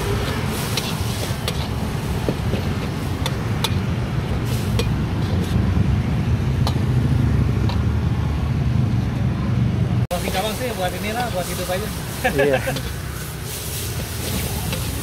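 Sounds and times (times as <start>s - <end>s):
metal spatula scraping a wok: 0.0s - 5.6s, 10.2s - 15.0s
light sizzle: 0.0s - 5.8s, 10.1s - 15.0s.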